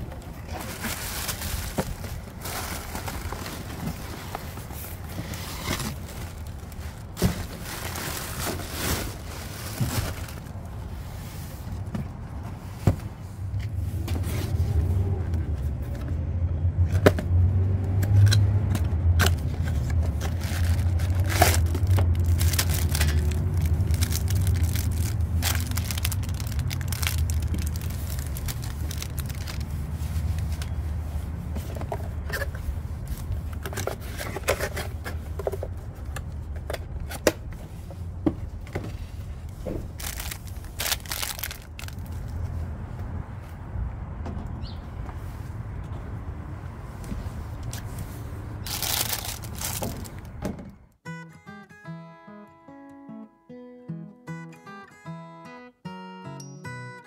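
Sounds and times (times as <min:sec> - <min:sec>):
cardboard and plastic packaging handled: 0:00.0 - 0:16.2, 0:18.6 - 0:42.6, 0:47.1 - 0:50.4.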